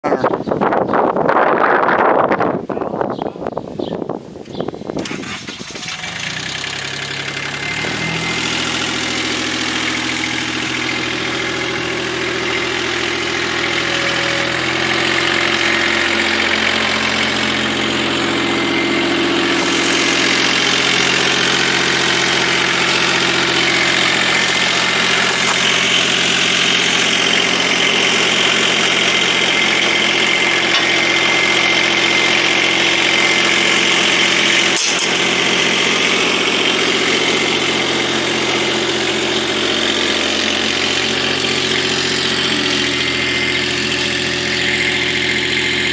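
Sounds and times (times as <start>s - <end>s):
skid steer engine idling: 5.0s - 45.9s.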